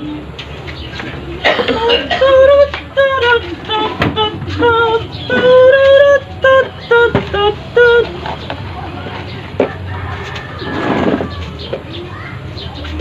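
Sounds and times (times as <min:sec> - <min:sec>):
sung melody through speaker: 0:01.9 - 0:08.7.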